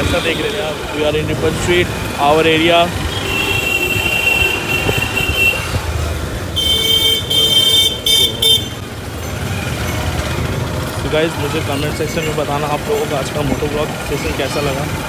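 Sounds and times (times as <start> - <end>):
motorcycle riding rumble: 0.0 - 15.0
vehicle horn toots: 3.1 - 5.8, 6.5 - 8.8.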